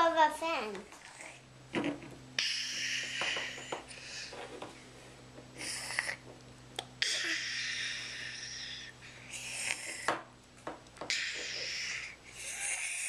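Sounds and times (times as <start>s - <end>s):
child making hissing blowing noises: 7.0s - 10.0s, 11.1s - 13.0s.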